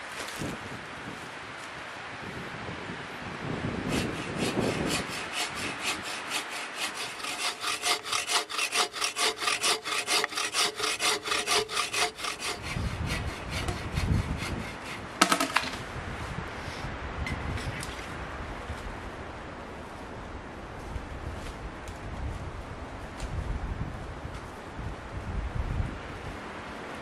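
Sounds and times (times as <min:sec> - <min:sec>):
hand saw cutting log: 0:03.8 - 0:15.8.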